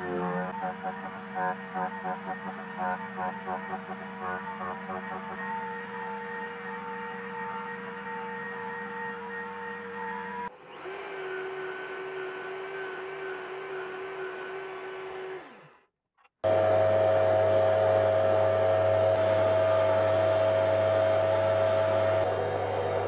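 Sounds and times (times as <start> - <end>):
drill press running: 0.0 - 15.8.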